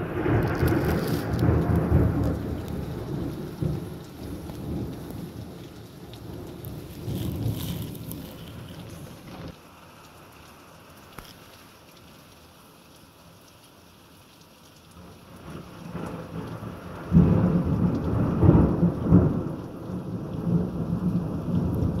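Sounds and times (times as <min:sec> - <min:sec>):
loud thunder clap: 0:00.0 - 0:04.0
thunder rumbling: 0:00.0 - 0:09.6, 0:15.4 - 0:22.0.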